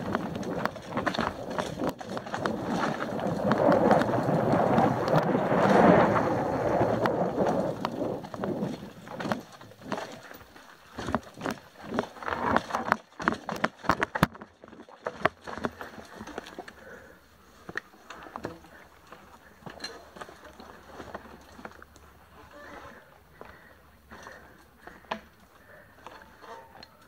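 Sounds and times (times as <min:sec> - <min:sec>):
bike clacking over rocks: 0:00.0 - 0:22.7
bike rattling: 0:00.0 - 0:27.0
bike tyres crunching over stones: 0:00.0 - 0:27.0.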